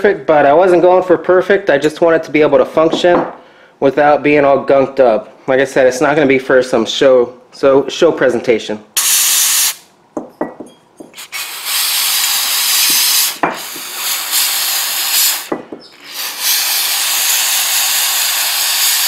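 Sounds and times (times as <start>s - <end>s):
aerosol can spraying: 9.0s - 9.8s, 11.2s - 19.0s.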